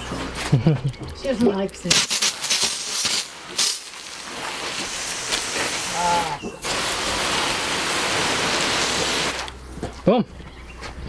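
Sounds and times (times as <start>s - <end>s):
hose water spraying on soil: 1.8s - 9.6s.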